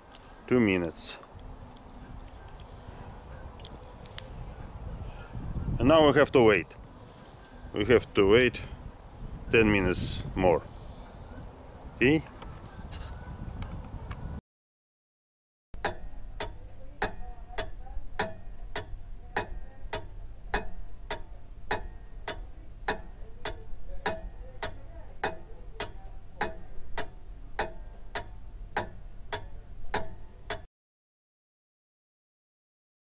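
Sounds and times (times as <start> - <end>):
pendulum clock ticking: 15.8 - 30.7.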